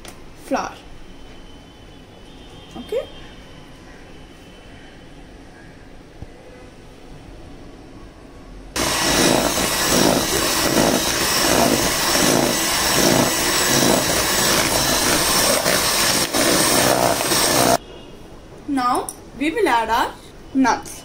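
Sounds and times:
electric hand mixer beating dough: 8.8s - 17.8s.

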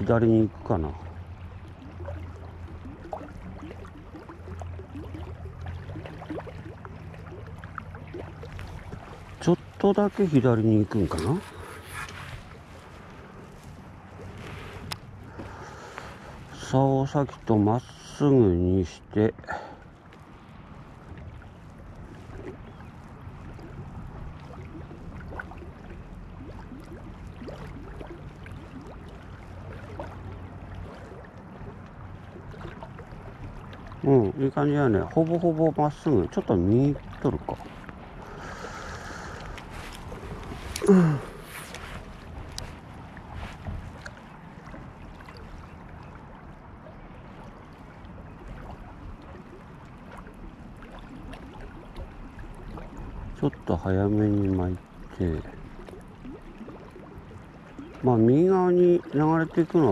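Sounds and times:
small waves lapping at shore: 0.0s - 59.9s
water plops and gurgles: 0.0s - 59.9s
wind rumble on microphone: 39.4s - 53.4s.

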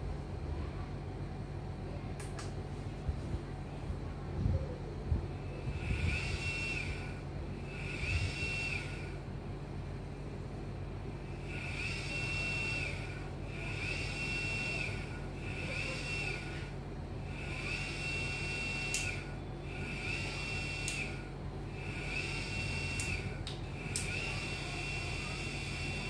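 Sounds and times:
steady low hum: 0.0s - 26.0s
electric motor high-pitched whine: 5.2s - 26.0s.

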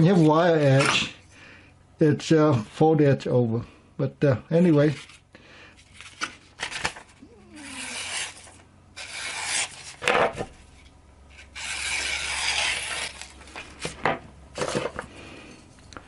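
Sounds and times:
knife slicing through paper: 7.5s - 10.0s, 11.4s - 13.4s.

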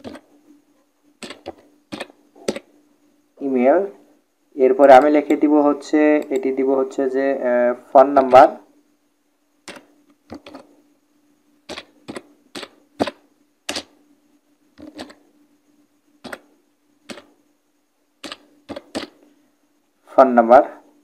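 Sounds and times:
computer keyboard keystrokes: 1.2s - 2.7s, 9.7s - 10.6s, 11.7s - 13.9s, 14.8s - 15.2s, 16.2s - 16.4s, 17.1s - 17.3s, 18.2s - 19.2s.

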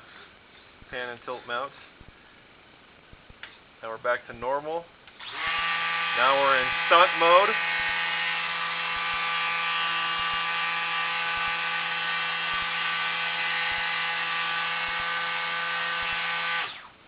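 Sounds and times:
electric motor and propeller whine: 5.2s - 17.0s.

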